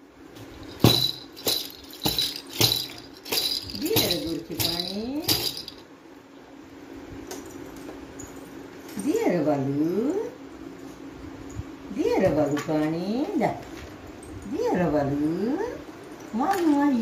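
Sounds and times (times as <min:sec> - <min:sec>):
jingle bell rattle shaken: 0:00.5 - 0:05.9.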